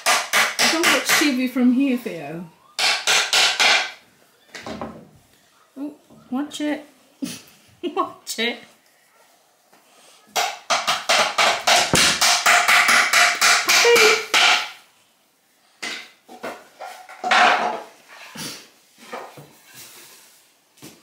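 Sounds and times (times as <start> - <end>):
scattered knocks: 10.7 - 13.8
rapid hammer blows: 11.1 - 14.0.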